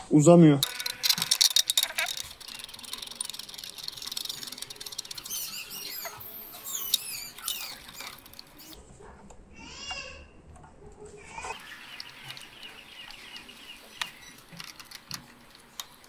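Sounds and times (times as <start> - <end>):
high squeaky chirps: 0.6 - 8.8, 11.4 - 15.1
metallic clicking of hand tools: 0.6 - 8.8.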